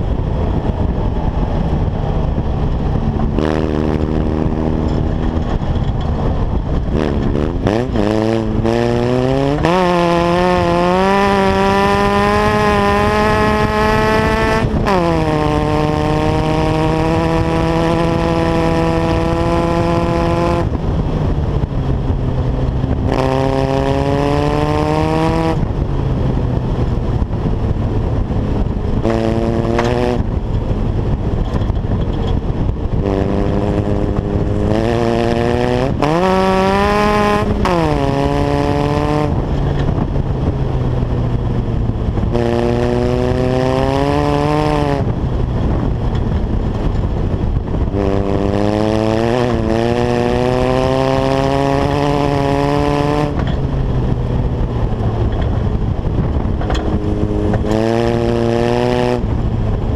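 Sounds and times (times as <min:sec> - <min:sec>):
steady rushing noise: 0:00.0 - 0:59.9
small engine revving: 0:06.9 - 0:20.8, 0:29.0 - 0:30.3, 0:56.5 - 0:59.2.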